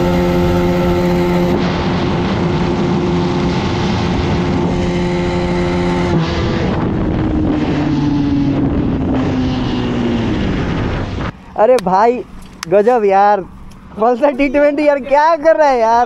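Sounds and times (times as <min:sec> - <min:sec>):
motorcycle engine revving: 0:00.0 - 0:11.4
wind on microphone: 0:00.0 - 0:12.7.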